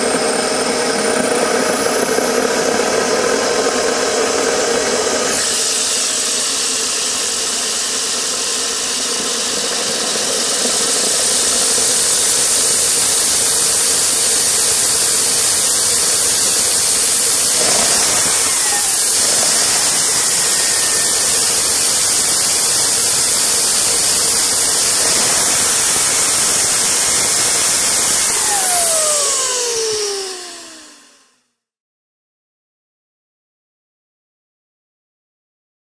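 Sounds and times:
gas turbine roaring with high whine: 0.0 - 31.4.

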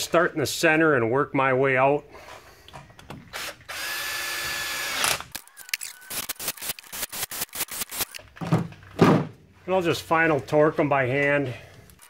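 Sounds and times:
cordless drill whining: 3.2 - 8.2
drill clutch clicking: 3.4 - 8.2.

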